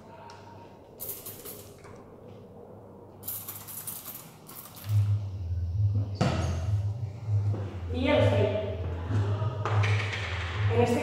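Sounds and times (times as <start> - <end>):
spray bottle hissing: 1.0 - 1.8, 3.2 - 5.0
low rumble: 4.9 - 11.0.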